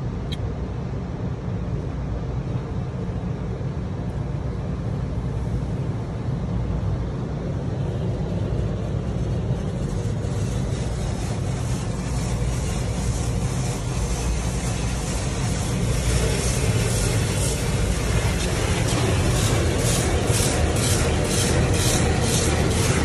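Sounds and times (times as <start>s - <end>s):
car wash machinery drone: 0.0s - 23.0s
water spray hissing on windows: 8.6s - 23.0s.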